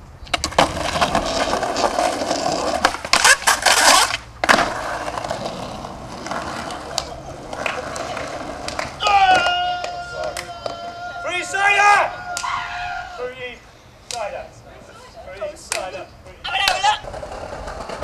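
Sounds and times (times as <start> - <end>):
skateboard wheels rolling on paving: 0.0 - 13.2, 16.4 - 18.0
skateboard scraping clatter: 0.3 - 9.0, 16.7 - 18.0
skateboard smack: 2.8 - 5.5, 6.3 - 10.8.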